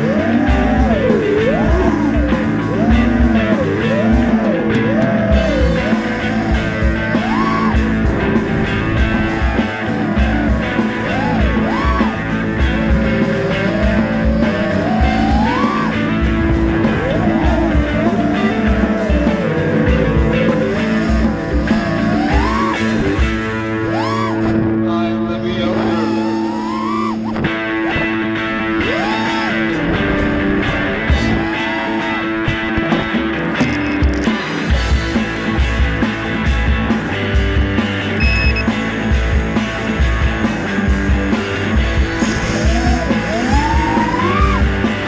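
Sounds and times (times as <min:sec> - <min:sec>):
rock music: 0:00.0 - 0:45.0.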